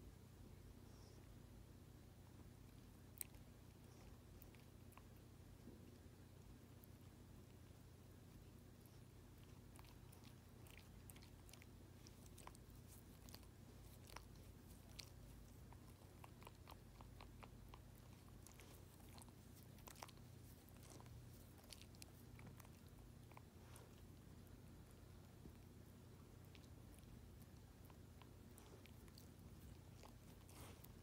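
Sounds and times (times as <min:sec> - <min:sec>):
dog licking its paw: 0:26.4 - 0:31.0.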